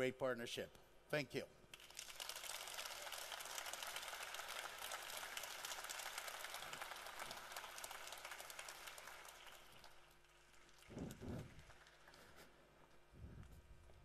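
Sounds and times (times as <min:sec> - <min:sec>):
audience applauding: 0:01.8 - 0:12.4.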